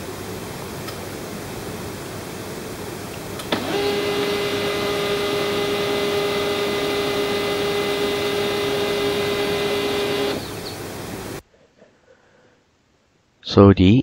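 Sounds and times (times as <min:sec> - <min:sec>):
printer motor whirring: 0:03.2 - 0:11.4.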